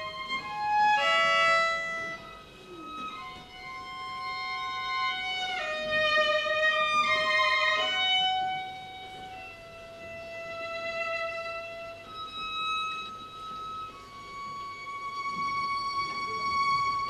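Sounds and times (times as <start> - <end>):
solo violin slow melody: 0.0 - 17.0.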